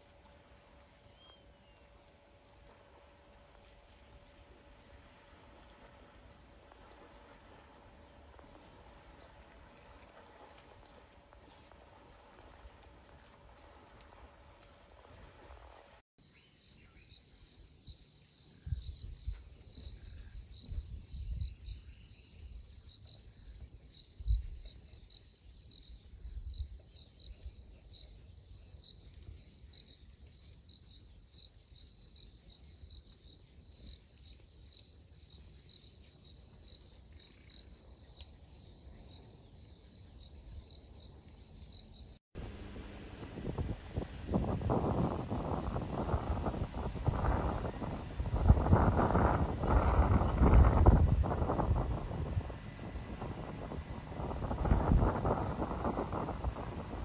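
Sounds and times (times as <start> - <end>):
low rumbling bursts: 42.4 - 57.0.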